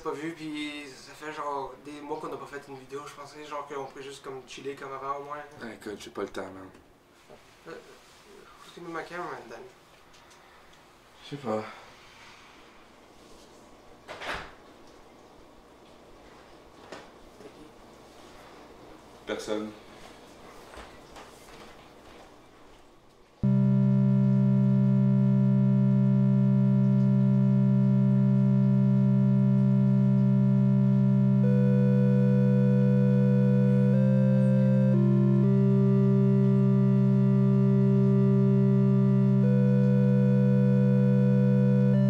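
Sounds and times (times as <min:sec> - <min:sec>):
loud low drone: 0:23.4 - 0:42.0
synthesizer music: 0:23.4 - 0:42.0.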